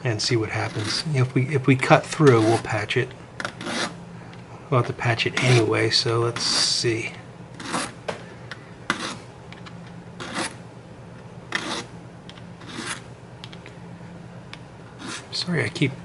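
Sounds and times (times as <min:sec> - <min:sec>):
file rasping on pipe stem: 0:03.6 - 0:04.0, 0:07.6 - 0:07.9, 0:08.9 - 0:09.2, 0:10.2 - 0:10.6, 0:11.5 - 0:11.9, 0:12.6 - 0:13.0, 0:15.0 - 0:15.3.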